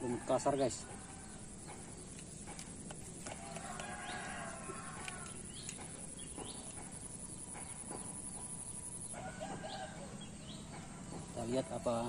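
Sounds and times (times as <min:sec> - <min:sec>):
high insect trill: 0:00.0 - 0:12.0
faint clicks: 0:04.9 - 0:06.9.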